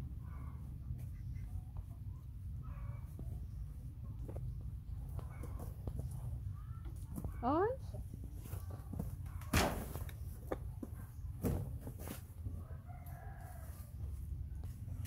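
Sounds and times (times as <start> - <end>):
rustles: 8.2 - 15.0
rooster crowing: 12.6 - 14.0.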